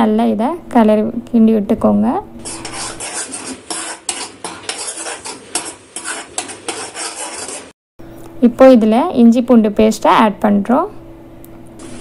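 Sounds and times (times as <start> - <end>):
metal spatula scraping a pan: 2.4 - 7.8.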